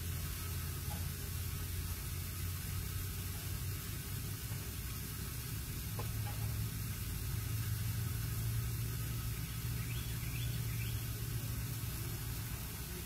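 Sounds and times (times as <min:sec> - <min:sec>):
small bird chirping: 0:09.4 - 0:11.1.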